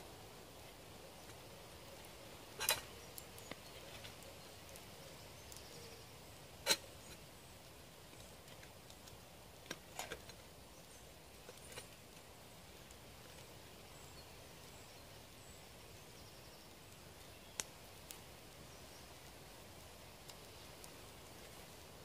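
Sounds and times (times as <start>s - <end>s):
faint outdoor hiss: 0.0s - 22.0s.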